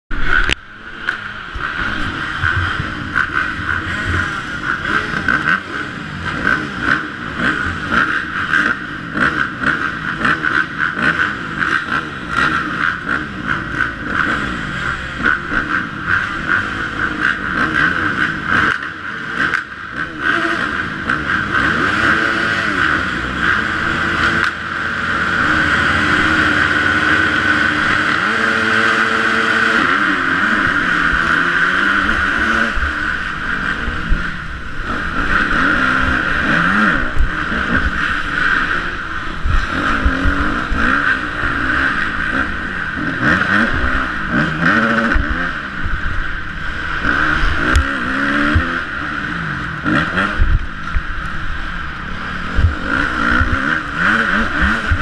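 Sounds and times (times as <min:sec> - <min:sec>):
dirt bike engines revving: 0:00.1 - 0:55.0.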